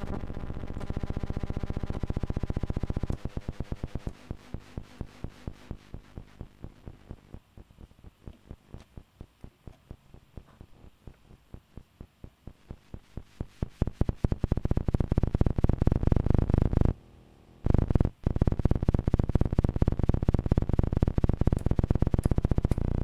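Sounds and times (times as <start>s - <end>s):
electronic clicks quickening into buzz: 0.0s - 7.4s, 17.6s - 23.0s.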